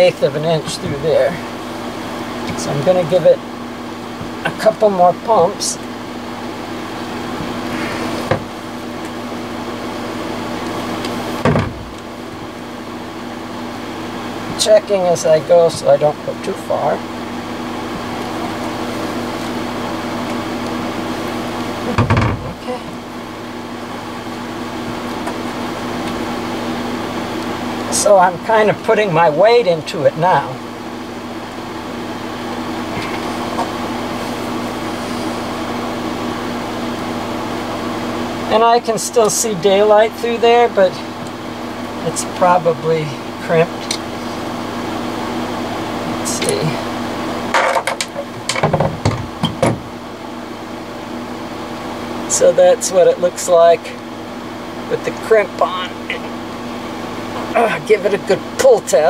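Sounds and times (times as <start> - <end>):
steady hum: 0.0 - 59.0
crimper knock: 11.4 - 12.0.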